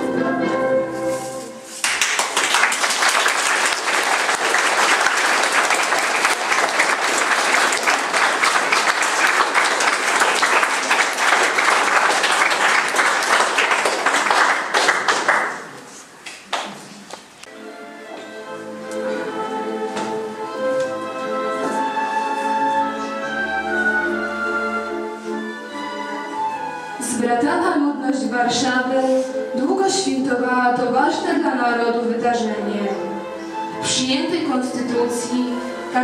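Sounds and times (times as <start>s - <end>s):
audience applause: 1.8s - 16.8s.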